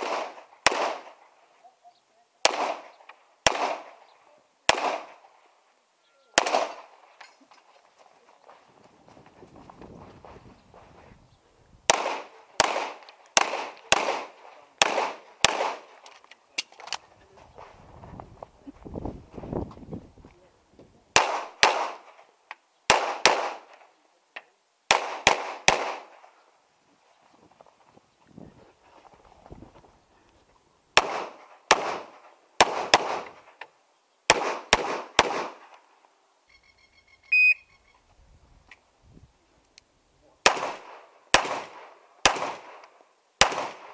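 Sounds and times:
pistol shots with echo: 0.0 - 1.2, 2.4 - 4.1, 4.7 - 5.2, 6.4 - 7.0, 11.9 - 15.9, 21.2 - 22.2, 22.9 - 23.8, 24.9 - 26.2, 31.0 - 33.5, 34.3 - 35.6, 40.4 - 43.9
electronic shot timer beep: 37.3 - 37.6.

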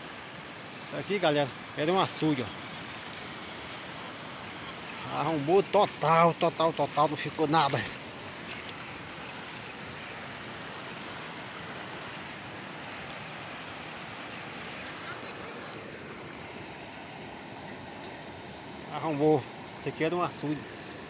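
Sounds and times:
floodwater rushing: 0.0 - 21.0.

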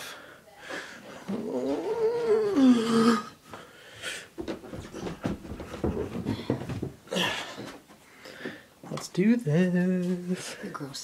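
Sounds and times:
long vocal call: 1.3 - 3.4
footsteps climbing stairs: 4.4 - 8.6.

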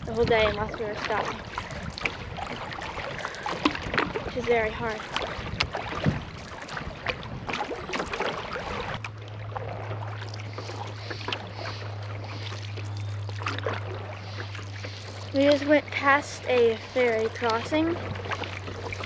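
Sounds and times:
gentle water noise: 0.0 - 19.0
paddle splashing in water: 0.0 - 19.0
steady low hum: 8.4 - 19.0.

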